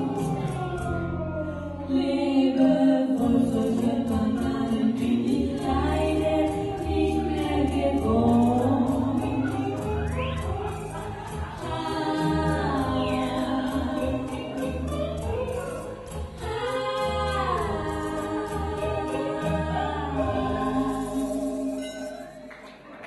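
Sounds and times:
women singing into microphones: 0.0 - 22.5
instrumental accompaniment with bass: 0.0 - 22.6.

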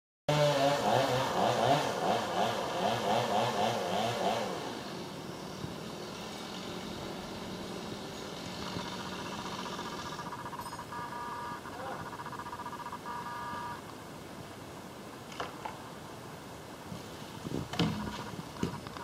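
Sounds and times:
small engine revving: 0.3 - 13.8.

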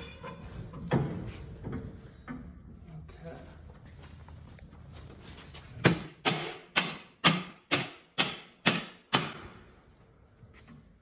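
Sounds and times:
hammer striking metal: 5.8 - 9.6.

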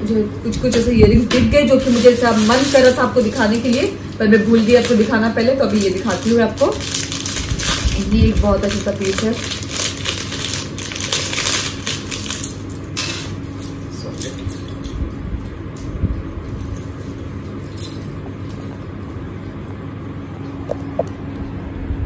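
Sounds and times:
steady low hum: 0.0 - 22.0
paper wrapper rustling: 1.7 - 13.5.

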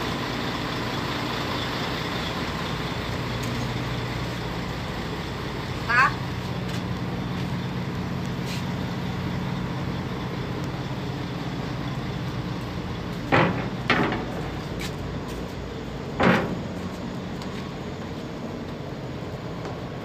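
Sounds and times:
low ferry engine hum: 0.0 - 20.0
sharp knocks: 13.3 - 14.5, 16.2 - 16.7.

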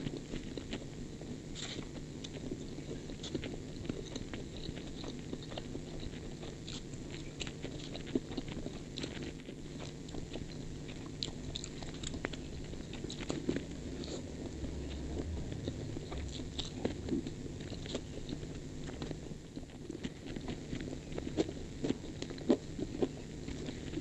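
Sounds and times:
wet chewing sounds: 0.0 - 24.0.

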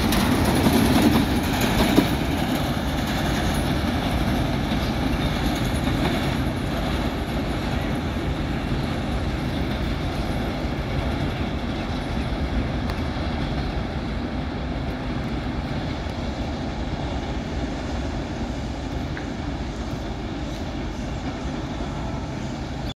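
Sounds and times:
train wheels on rails: 0.0 - 22.9.

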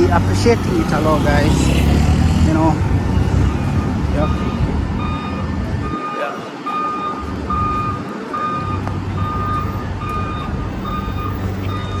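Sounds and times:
passing traffic rumble: 0.0 - 12.0
electronic warning beeps: 3.1 - 12.0.

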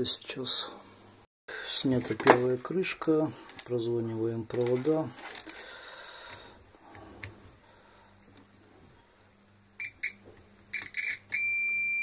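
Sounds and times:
multimeter continuity beeps: 9.8 - 12.0.

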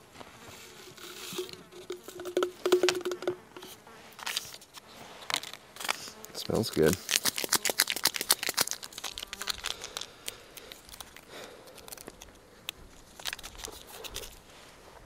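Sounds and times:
wrapper crinkling: 5.2 - 14.4.

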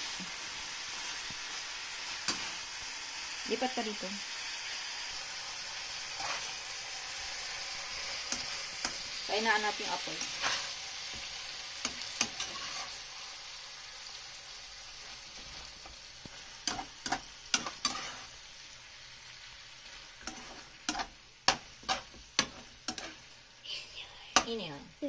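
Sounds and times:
chicken sizzling in frying pan: 0.0 - 25.0
metal turner scraping pan: 6.1 - 6.6, 8.2 - 13.0, 15.0 - 18.4, 20.0 - 23.3.

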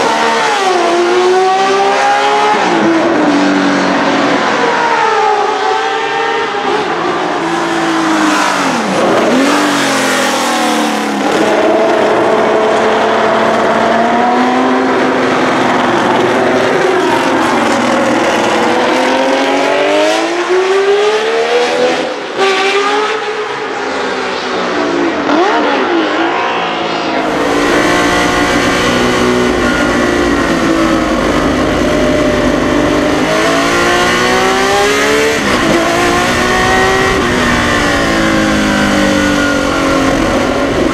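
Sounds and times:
racing car engine revving: 0.0 - 40.9.

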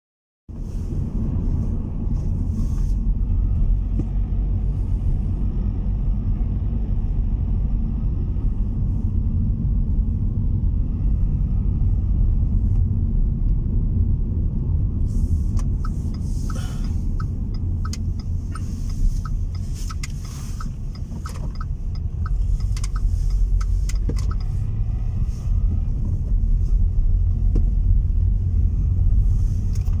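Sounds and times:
car engine and tyres rumbling: 0.5 - 30.0
turn signal ticking: 15.5 - 26.5.

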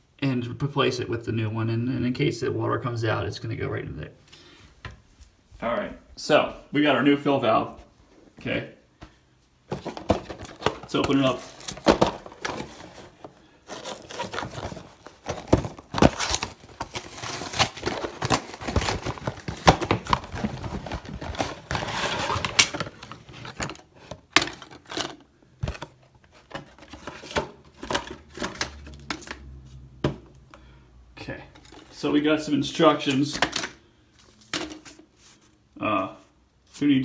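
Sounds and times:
packaging rustling and crinkling: 9.7 - 29.5, 31.5 - 32.1.

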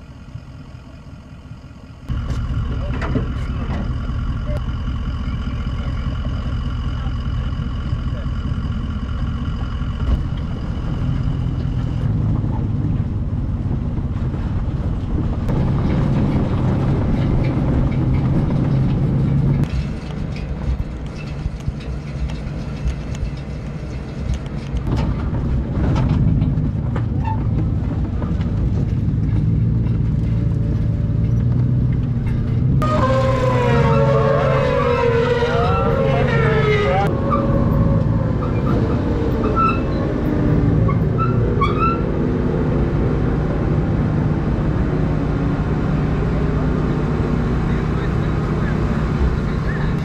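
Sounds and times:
road noise: 0.0 - 50.0
truck engine hum: 0.0 - 50.0
high squeal: 32.8 - 42.4.

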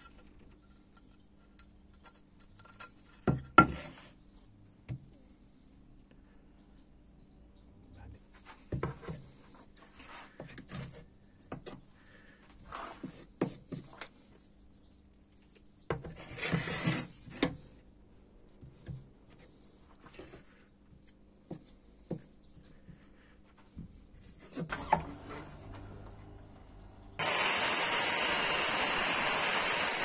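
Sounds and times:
wooden stick scraping on board: 16.0 - 17.5.

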